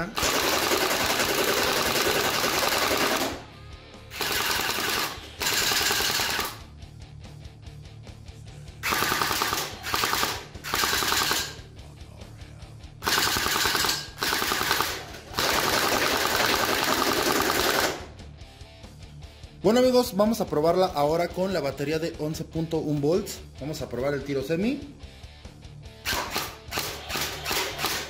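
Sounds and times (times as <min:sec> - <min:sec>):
toy gun firing rapid bursts: 0:00.0 - 0:03.5, 0:04.1 - 0:06.6, 0:08.8 - 0:11.6, 0:13.0 - 0:18.1, 0:26.1 - 0:28.0.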